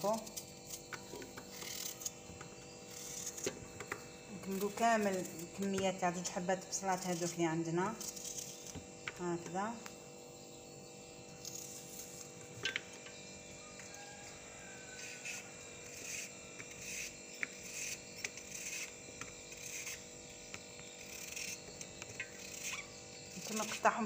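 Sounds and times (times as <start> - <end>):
knife slicing onion: 0.0 - 8.8, 15.0 - 20.1
faint steady hum: 0.0 - 24.0.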